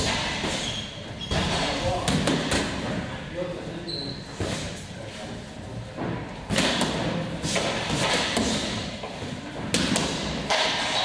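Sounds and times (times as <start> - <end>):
boxing gloves striking focus mitts: 6.4 - 11.0.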